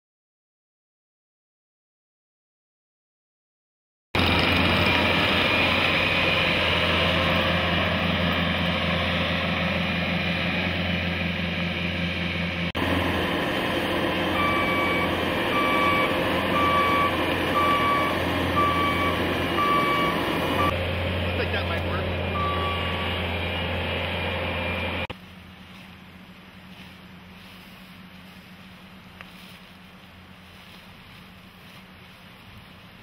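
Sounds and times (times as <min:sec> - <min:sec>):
diesel engine running: 0:04.2 - 0:33.0
backup alarm beeping: 0:14.0 - 0:20.8, 0:22.3 - 0:23.7.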